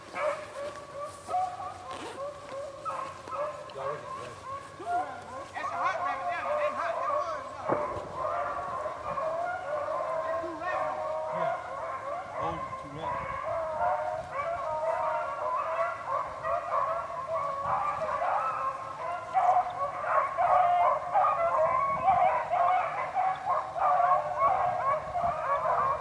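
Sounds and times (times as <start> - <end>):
pack of dogs baying and barking: 0.0 - 26.0.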